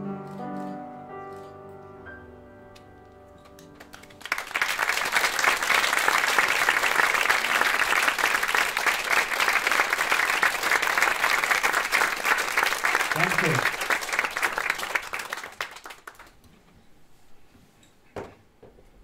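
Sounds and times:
piano chord: 0.0 - 4.1
audience applauding: 3.8 - 16.4.

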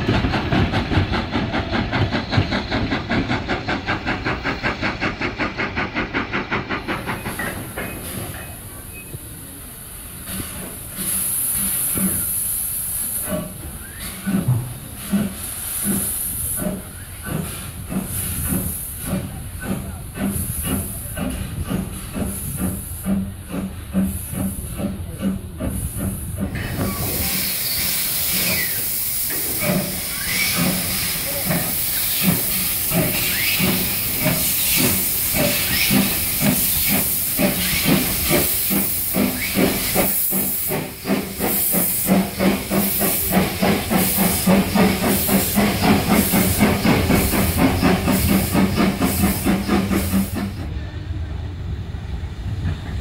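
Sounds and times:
steam locomotive beat: 0.0 - 8.9, 9.6 - 50.8
steam hissing: 0.0 - 50.8.

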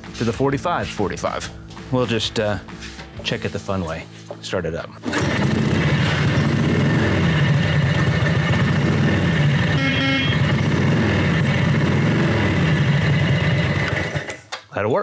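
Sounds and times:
motorcycle engine running: 5.0 - 14.4.

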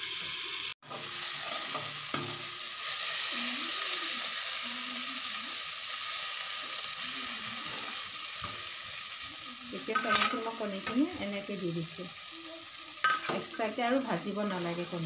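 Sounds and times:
onions sizzling in oil: 0.0 - 15.0
metal spoon stirring in wok: 0.8 - 3.1, 6.2 - 12.0, 13.0 - 15.0.

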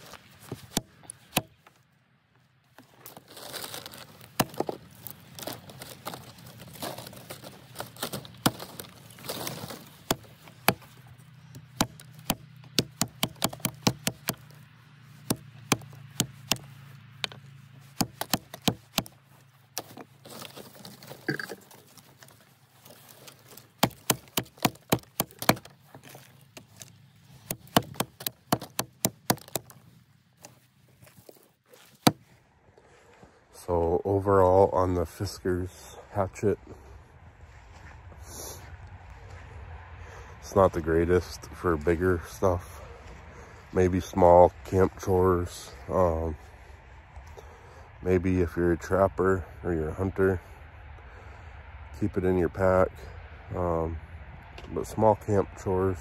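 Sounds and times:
hatchet chopping on wooden block: 0.7 - 1.6, 10.1 - 10.9, 11.6 - 14.5, 15.2 - 19.1, 23.5 - 25.7, 27.4 - 29.7, 32.0 - 32.2.

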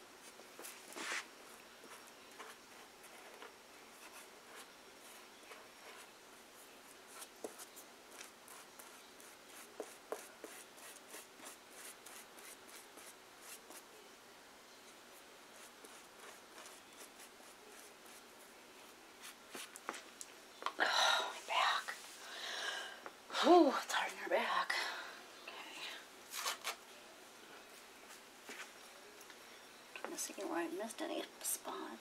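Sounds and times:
paintbrush brushing on paper: 0.2 - 13.9, 15.5 - 18.3, 19.2 - 20.0.

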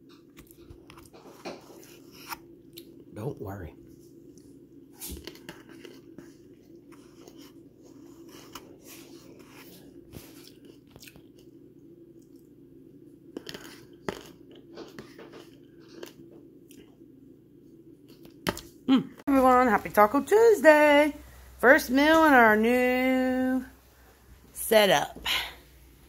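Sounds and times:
steady low hum: 0.0 - 26.0
spoon scooping in paper bowl: 5.0 - 10.8
person chewing: 5.2 - 12.6, 13.2 - 17.0.

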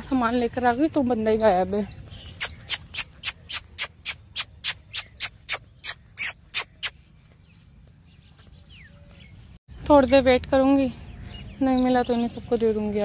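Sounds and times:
faint outdoor background: 0.0 - 13.0
mouth clicks calling a dog: 2.4 - 7.0.

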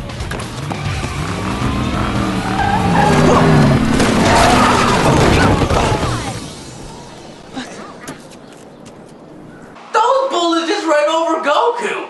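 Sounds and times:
car tyres squealing: 0.7 - 7.3.

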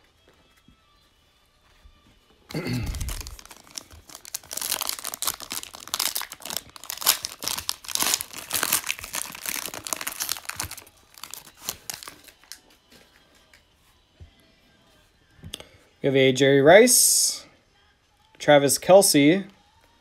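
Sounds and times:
foil wrapper tearing and crinkling: 2.6 - 12.6.

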